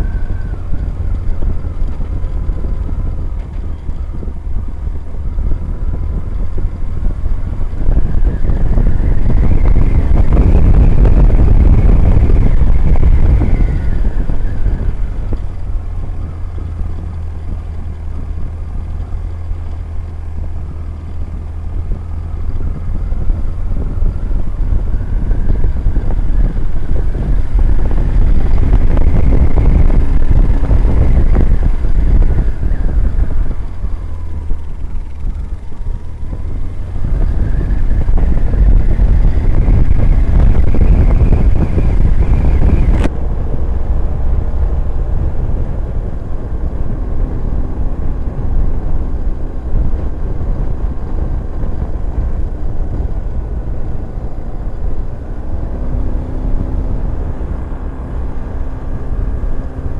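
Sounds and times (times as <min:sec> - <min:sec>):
motorcycle engine running: 0:00.0 - 0:59.9
wind noise on microphone: 0:00.0 - 0:59.9.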